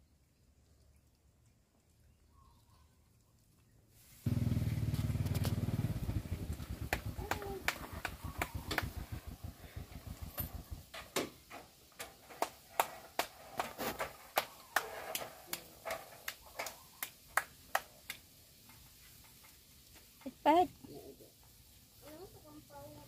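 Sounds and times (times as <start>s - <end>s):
low engine rumble: 4.3s - 11.0s.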